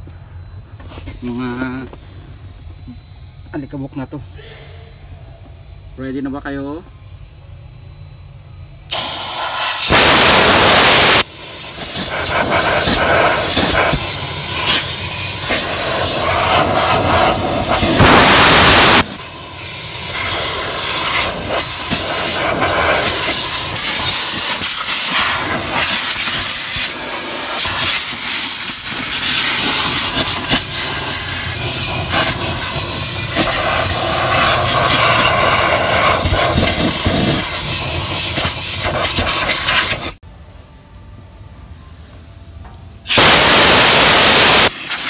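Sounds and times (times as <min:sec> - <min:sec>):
compressed-air blow gun hissing: 0:09.1 - 0:19.0.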